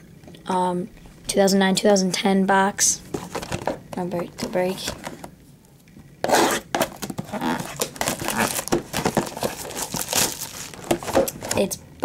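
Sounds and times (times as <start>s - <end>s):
plastic shrink wrap crinkling and tearing: 6.4s - 11.7s.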